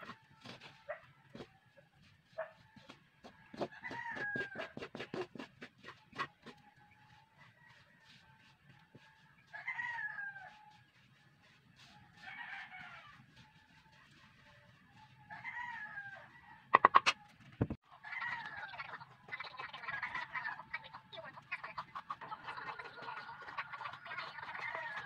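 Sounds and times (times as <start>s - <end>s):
chickens calling: 17.9s - 25.0s.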